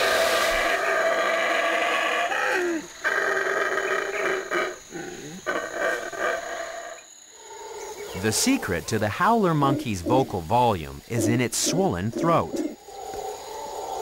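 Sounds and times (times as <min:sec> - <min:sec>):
howler monkey howling: 0:00.0 - 0:10.2.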